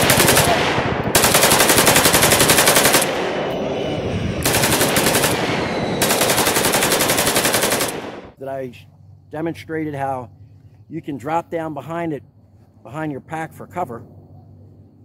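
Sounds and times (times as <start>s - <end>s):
automatic gunfire bursts: 0.0s - 3.3s, 4.4s - 8.2s.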